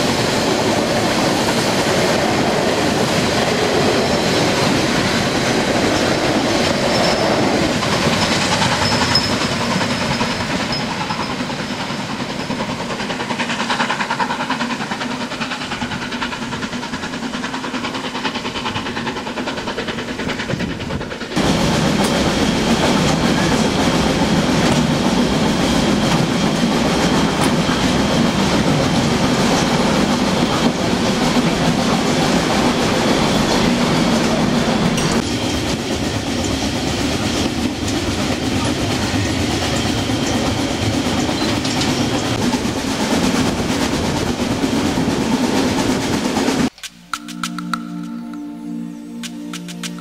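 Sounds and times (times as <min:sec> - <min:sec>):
train wheels clattering on rails: 0:00.0 - 0:48.2
soft calm music: 0:47.0 - 0:50.0.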